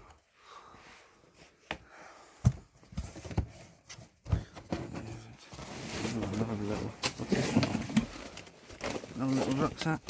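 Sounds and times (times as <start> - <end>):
knocks and clunks of objects: 2.4 - 10.0
rustling: 5.4 - 10.0.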